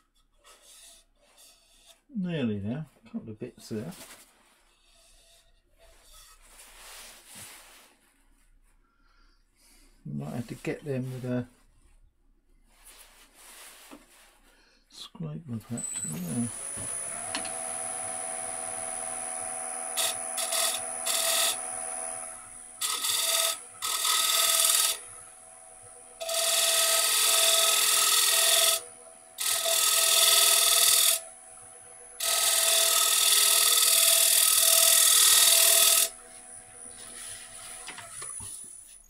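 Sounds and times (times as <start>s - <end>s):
wood lathe humming: 15.8s - 39.0s
scraper rasping on spinning wood: 16.1s - 39.0s.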